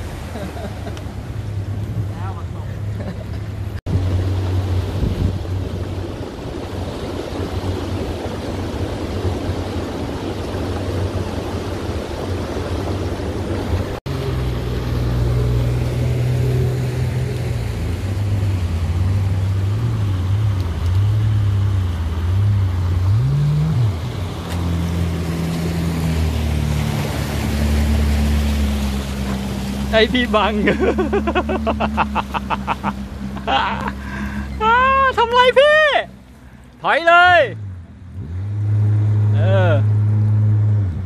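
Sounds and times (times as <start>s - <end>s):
boat motor running: 0.0s - 41.0s
jet ski engines revving: 0.0s - 41.0s
rushing water: 0.0s - 41.0s
water spraying: 3.9s - 36.6s.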